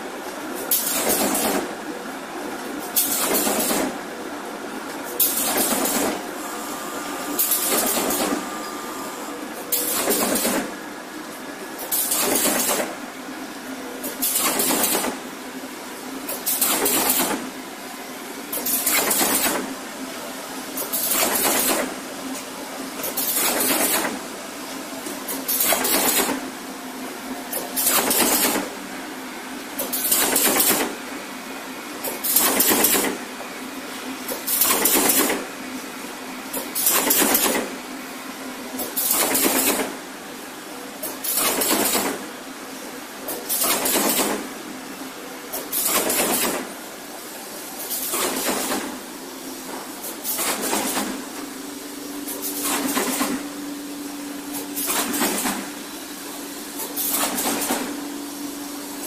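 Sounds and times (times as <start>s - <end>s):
steady machine hum: 3.9s - 11.8s
machine bursts of noise: 5.3s - 10.7s.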